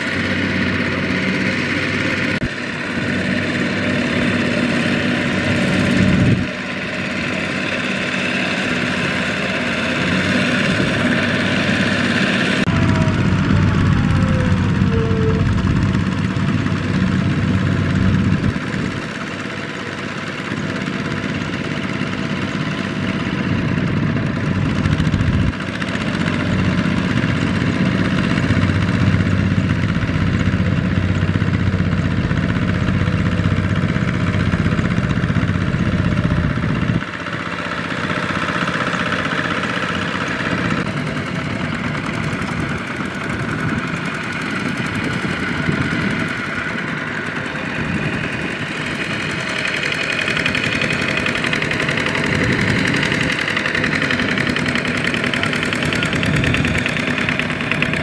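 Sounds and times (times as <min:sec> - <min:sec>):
single-cylinder diesel engine running: 0:00.0 - 0:58.0.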